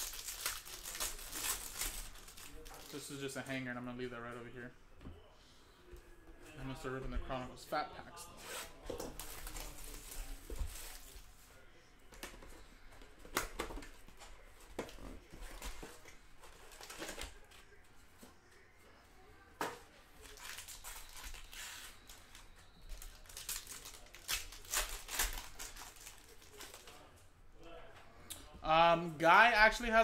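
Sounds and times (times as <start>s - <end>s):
wrappers tearing and crinkling: 0.0s - 3.2s, 20.2s - 27.1s.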